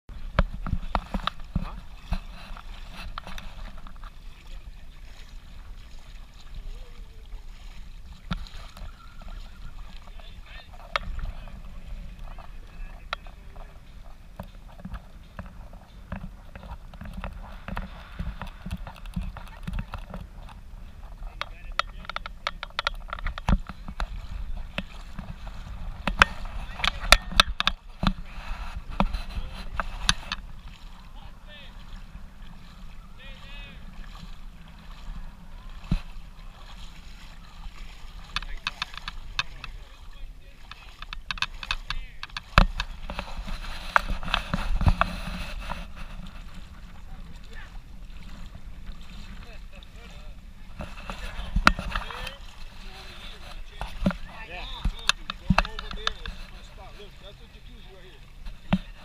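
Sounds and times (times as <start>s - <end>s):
wind rumble on microphone: 0.1s - 56.8s
splashes in shallow water: 0.1s - 59.0s
faint voices: 4.2s - 7.8s, 8.5s - 59.0s
faint distant voices: 23.6s - 41.0s.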